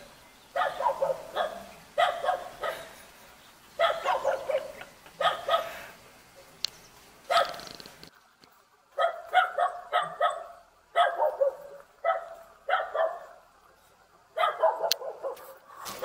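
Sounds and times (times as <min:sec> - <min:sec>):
dog barking: 0:00.6 - 0:02.9, 0:03.8 - 0:05.7, 0:07.3 - 0:07.6, 0:09.0 - 0:13.4, 0:14.4 - 0:15.6.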